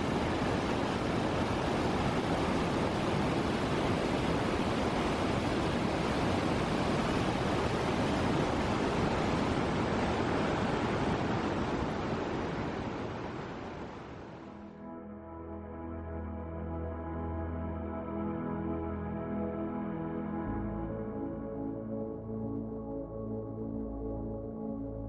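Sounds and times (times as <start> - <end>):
river rushing over boulders: 0.0 - 14.6.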